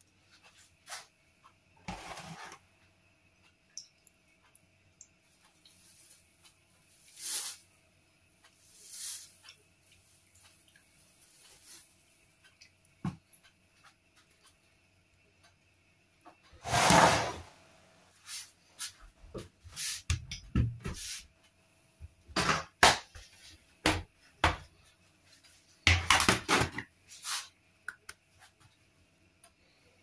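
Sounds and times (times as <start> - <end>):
kitchen utensils clattering: 1.9 - 2.6, 16.6 - 17.5.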